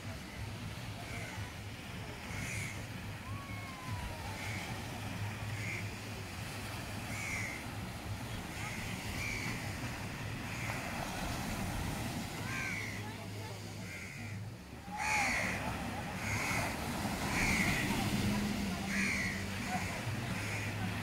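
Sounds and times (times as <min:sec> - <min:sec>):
waves washing up a beach: 0:00.0 - 0:21.0
crows cawing: 0:02.3 - 0:02.8, 0:05.6 - 0:05.8, 0:07.1 - 0:07.6, 0:08.5 - 0:09.6, 0:12.4 - 0:13.0, 0:13.9 - 0:17.9, 0:18.9 - 0:20.8.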